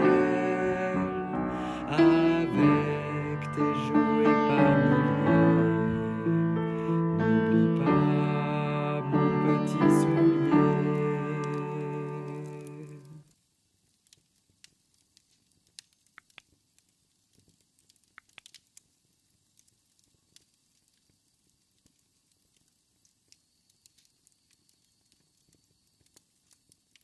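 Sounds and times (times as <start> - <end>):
low hiss: 0.0 - 27.0
faint clicks and crackles: 10.9 - 27.0.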